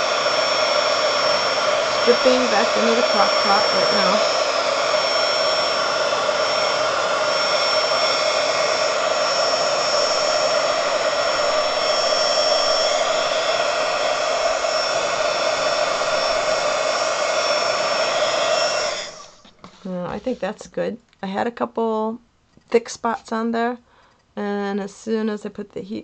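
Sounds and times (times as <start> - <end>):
heat gun blowing: 0.0 - 20.5.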